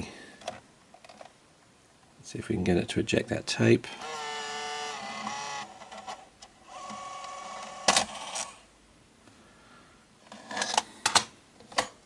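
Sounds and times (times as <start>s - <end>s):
tape mechanism motor whirring: 4.0s - 8.6s.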